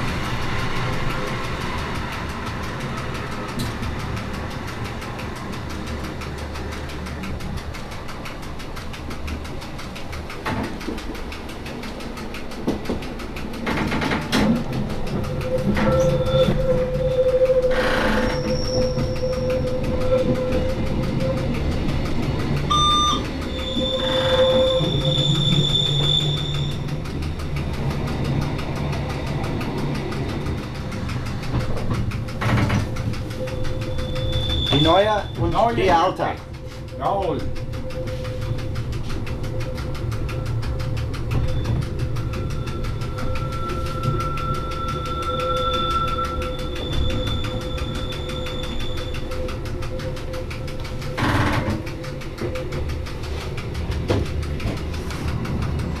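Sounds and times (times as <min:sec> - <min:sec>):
train wheels rumbling on rail: 0:00.0 - 0:56.0
high squealing tones: 0:15.3 - 0:21.5, 0:22.7 - 0:26.9, 0:32.4 - 0:50.4.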